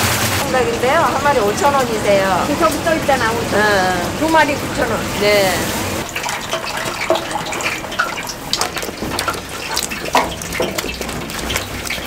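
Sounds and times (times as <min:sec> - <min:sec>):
deep-frying oil sizzling: 0:00.0 - 0:12.0
small crackles and pops: 0:06.1 - 0:12.0.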